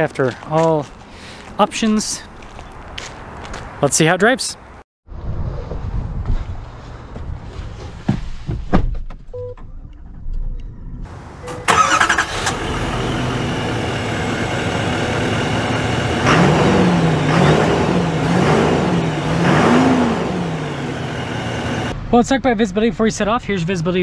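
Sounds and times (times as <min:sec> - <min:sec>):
diesel engine starting and idling: 0:11.1 - 0:22.0
engine revving: 0:11.6 - 0:22.0.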